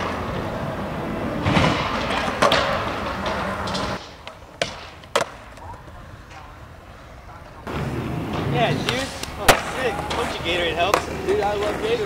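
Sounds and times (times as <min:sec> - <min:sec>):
skateboard clacks: 0:00.0 - 0:12.0
loud dense noise: 0:05.9 - 0:12.0.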